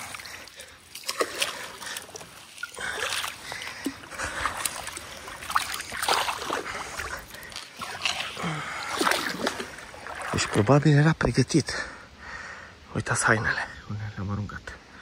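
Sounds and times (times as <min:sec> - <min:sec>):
river water splashing: 0:00.0 - 0:11.4.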